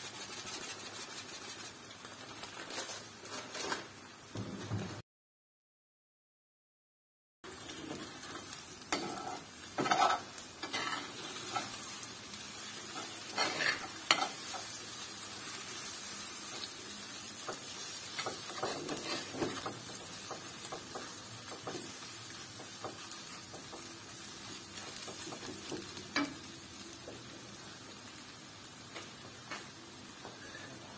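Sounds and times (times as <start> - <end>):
food sizzling in a frying pan: 0.0 - 4.7, 7.5 - 30.9
metal spoon scraping a pan: 8.9 - 11.9, 12.8 - 14.8, 18.1 - 19.7.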